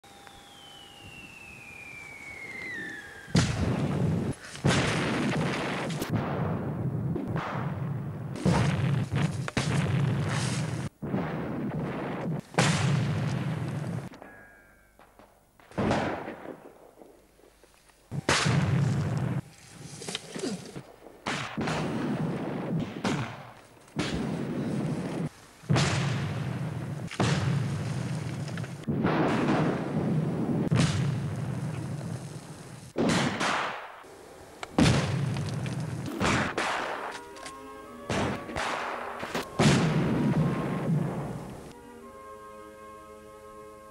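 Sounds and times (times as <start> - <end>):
rumbling and crackling: 2.5 - 14.2, 15.0 - 33.6, 34.6 - 37.2
explosion bangs and booms: 3.3 - 14.1, 15.6 - 17.2, 18.1 - 19.4, 20.9 - 32.3, 33.0 - 33.9, 34.8 - 37.1, 38.1 - 41.5
explosion blast: 3.3 - 14.1, 39.6 - 41.4
music: 36.6 - 43.9.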